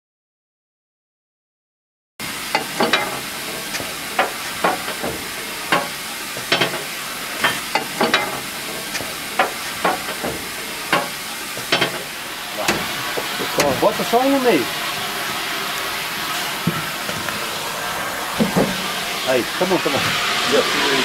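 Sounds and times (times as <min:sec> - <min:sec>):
steady hiss: 0:02.2 - 0:21.0
fire iron knocking and scraping metal: 0:02.5 - 0:14.2, 0:16.6 - 0:17.3, 0:18.4 - 0:19.2.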